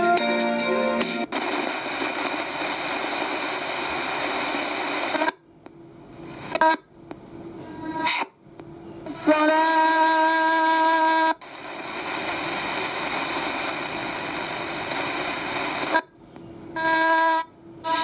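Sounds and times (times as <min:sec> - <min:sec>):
radio static hiss: 0:00.9 - 0:18.0
buzzing horn-like tone: 0:16.8 - 0:18.0.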